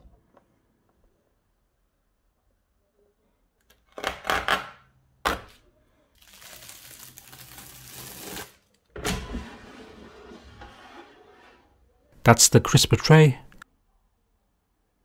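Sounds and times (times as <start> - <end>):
bubble wrap rustling: 6.2 - 8.7
plastic film crinkling: 6.2 - 8.7.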